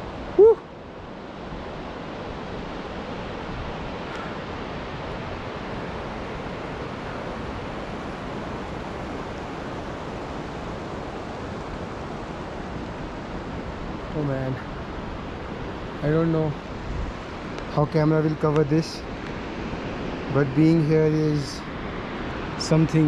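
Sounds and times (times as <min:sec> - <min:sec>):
fast mountain river rushing: 0:00.0 - 0:23.0
brief vocal sound: 0:00.4 - 0:00.6.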